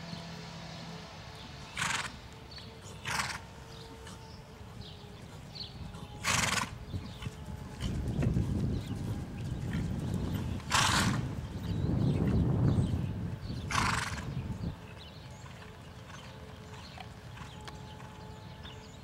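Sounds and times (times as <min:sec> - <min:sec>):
faint steady hum: 0:00.0 - 0:19.0
horse snorting: 0:01.7 - 0:02.2, 0:02.8 - 0:04.4, 0:05.2 - 0:08.5, 0:09.7 - 0:11.3, 0:13.7 - 0:14.3
hoofbeats on sand: 0:02.8 - 0:19.0.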